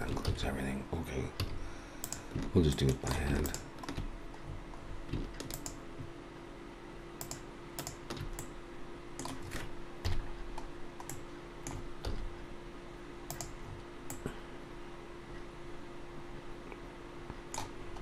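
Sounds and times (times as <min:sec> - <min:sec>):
faint hum: 0:00.0 - 0:18.0
keyboard keystrokes: 0:01.4 - 0:04.1, 0:05.1 - 0:05.8, 0:07.2 - 0:08.5, 0:09.2 - 0:12.2, 0:13.3 - 0:14.2
mouse clicks: 0:02.0 - 0:04.0, 0:05.4 - 0:05.8, 0:07.2 - 0:08.5, 0:13.3 - 0:14.2.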